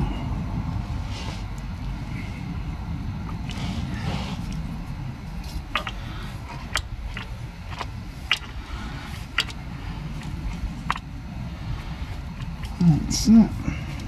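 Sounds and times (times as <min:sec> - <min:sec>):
low steady rumble: 0:00.0 - 0:14.0.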